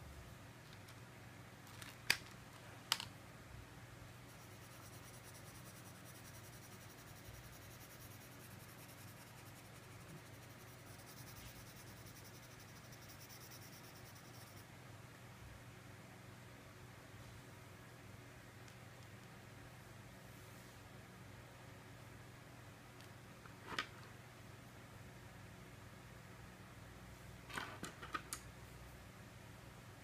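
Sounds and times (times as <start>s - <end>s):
crayon scratching on paper: 4.3s - 14.6s.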